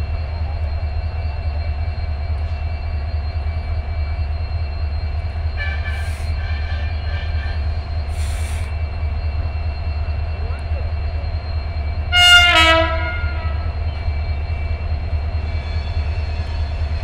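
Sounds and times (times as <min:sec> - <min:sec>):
train rumbling on track: 0:00.0 - 0:17.0
short hisses: 0:08.1 - 0:08.7.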